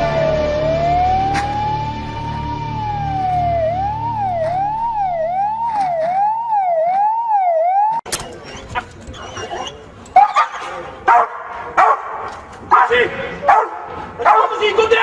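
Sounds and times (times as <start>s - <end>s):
emergency siren: 0.0s - 8.1s.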